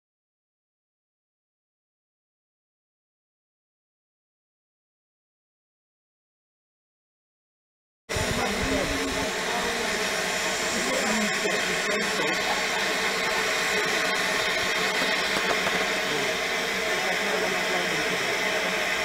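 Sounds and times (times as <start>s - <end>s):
steam hissing from locomotive: 8.1s - 19.0s.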